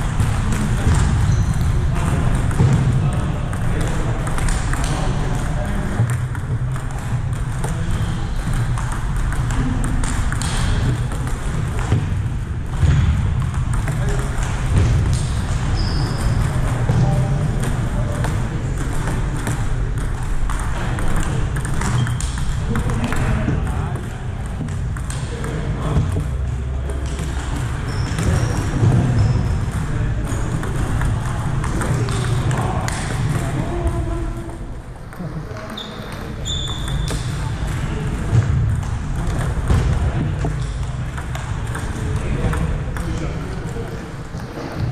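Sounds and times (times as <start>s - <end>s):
table tennis ball clicking: 0.2s - 12.1s, 17.6s - 28.9s, 35.1s - 43.2s
short high squeaks: 35.7s - 37.1s.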